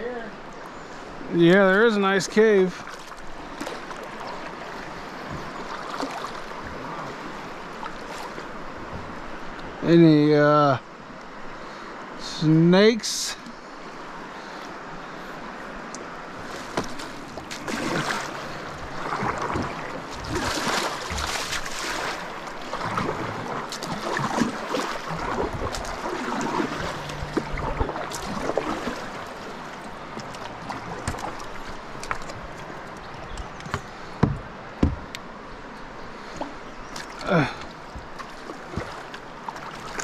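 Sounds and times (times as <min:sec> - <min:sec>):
water moving past hull: 0:00.8 - 0:09.9, 0:11.4 - 0:40.0
paddle strokes splashing in water: 0:02.6 - 0:09.6, 0:14.1 - 0:35.4, 0:36.1 - 0:40.0
short knocks: 0:33.6 - 0:35.2.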